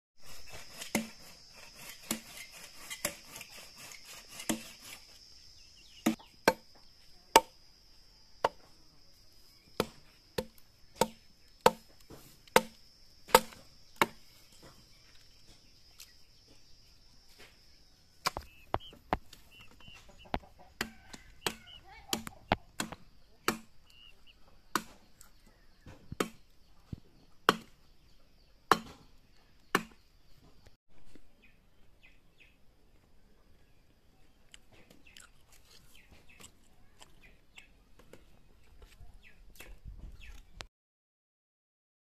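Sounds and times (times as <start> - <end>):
hatchet chopping firewood: 0.4 - 5.3, 5.9 - 7.6, 8.4 - 8.8, 9.8 - 14.8, 18.2 - 24.0, 24.7 - 28.0, 28.7 - 30.1.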